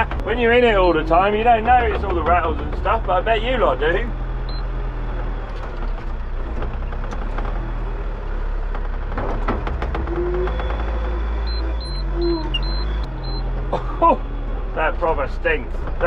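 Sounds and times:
bucket rattles and knocks: 0:00.0 - 0:03.3, 0:08.7 - 0:11.4
diesel engine running: 0:00.0 - 0:16.0
short high beeps: 0:11.8 - 0:13.4.

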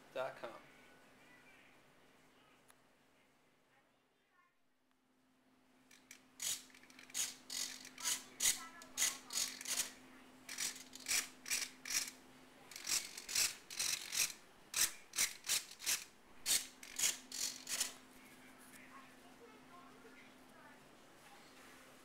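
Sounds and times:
small servos whirring: 0:05.9 - 0:18.0.

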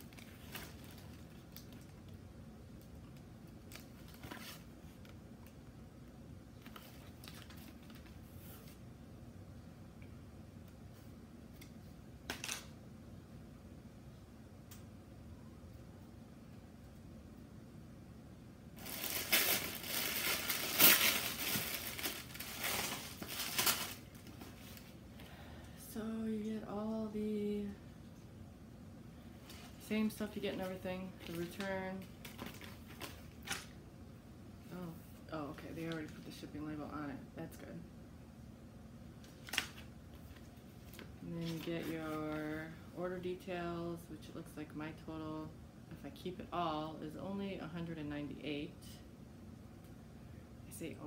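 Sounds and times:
paper card rustling and crinkling: 0:18.8 - 0:25.0, 0:30.5 - 0:33.7, 0:39.2 - 0:42.4
tissue paper crinkling: 0:18.8 - 0:25.0.

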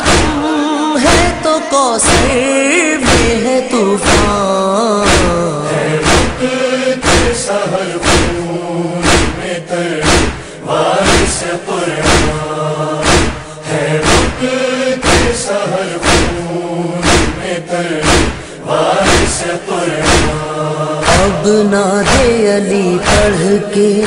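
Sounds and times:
deep rhythmic thumps: 0:00.0 - 0:23.6
men chanting in unison: 0:00.0 - 0:23.8.

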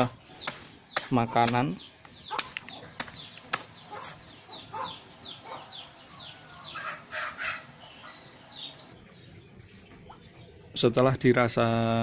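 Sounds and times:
knife chopping fruit: 0:00.4 - 0:04.2
poultry calling: 0:01.3 - 0:09.0.

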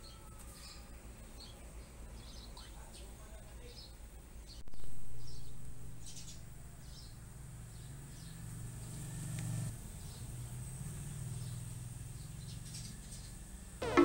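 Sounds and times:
faint birds chirping: 0:00.0 - 0:14.0
low subwoofer hum: 0:04.6 - 0:07.2.

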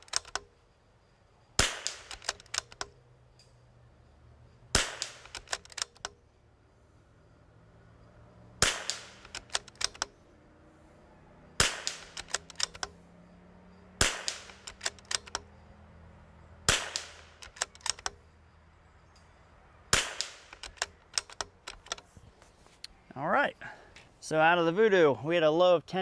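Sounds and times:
rifle bolt clicking: 0:00.0 - 0:00.5, 0:01.8 - 0:03.0, 0:04.8 - 0:06.2, 0:08.6 - 0:10.2, 0:11.7 - 0:13.0, 0:14.1 - 0:15.5, 0:16.8 - 0:18.2, 0:20.2 - 0:22.1
rifle shots: 0:01.6 - 0:02.6, 0:04.7 - 0:05.6, 0:08.6 - 0:10.0, 0:11.6 - 0:12.8, 0:14.0 - 0:15.3, 0:16.7 - 0:18.0, 0:19.9 - 0:20.8.

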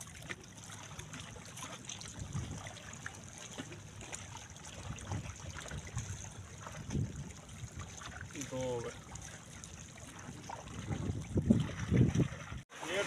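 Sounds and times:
water lapping against rocks: 0:00.0 - 0:13.0.

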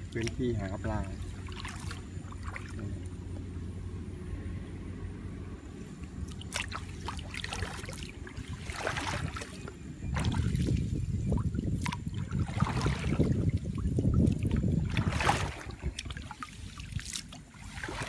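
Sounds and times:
water splashing in a ditch: 0:00.0 - 0:03.2, 0:06.0 - 0:18.0
steady low rumble: 0:00.0 - 0:18.0.

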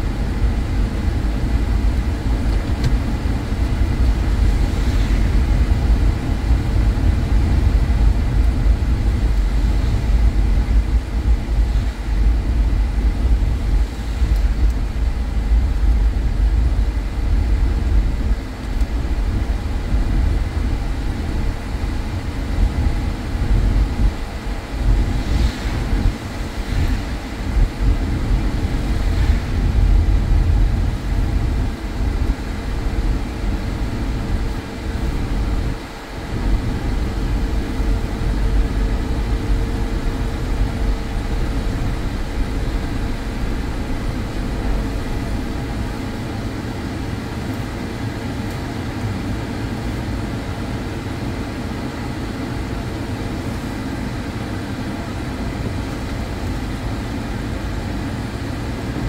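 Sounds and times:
car engine and tyre rumble: 0:00.0 - 0:59.0
steady cabin hum: 0:00.0 - 0:59.0.

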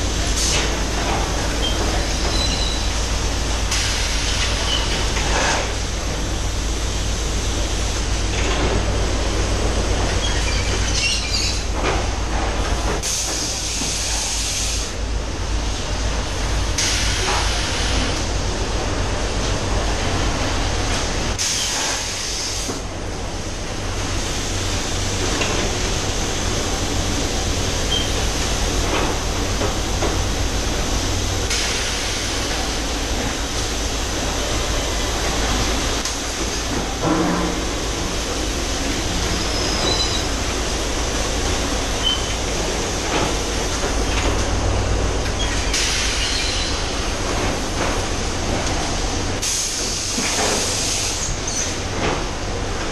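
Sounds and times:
conveyor and machine hum: 0:00.0 - 0:52.9
compressed air hisses: 0:13.0 - 0:15.0, 0:49.4 - 0:51.2.

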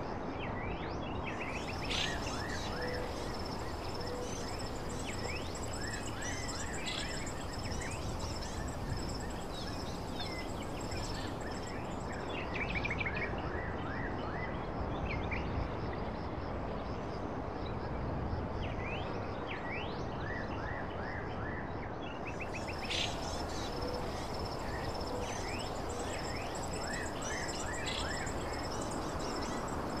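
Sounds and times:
faint high whine: 0:01.3 - 0:12.8, 0:22.4 - 0:30.0.

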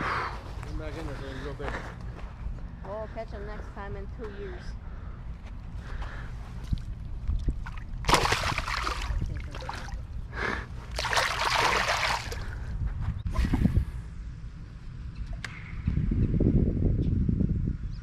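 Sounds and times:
fish splashing in shallow water: 0:06.6 - 0:10.0, 0:10.9 - 0:12.6.

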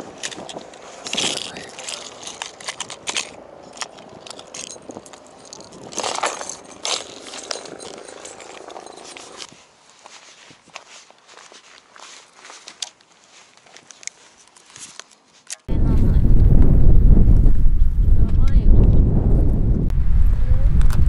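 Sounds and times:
plastic lures clicking and rattling: 0:00.2 - 0:09.5.

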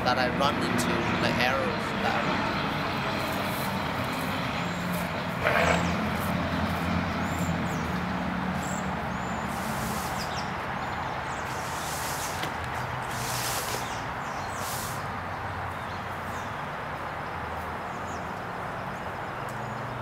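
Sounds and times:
vehicle engine hum: 0:00.0 - 0:20.0
bird chirps: 0:00.8 - 0:15.1
rustle: 0:09.4 - 0:10.5, 0:11.4 - 0:15.2.

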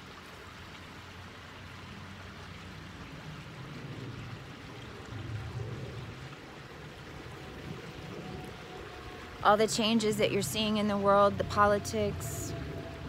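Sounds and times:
steady rushing noise: 0:03.4 - 0:13.0.

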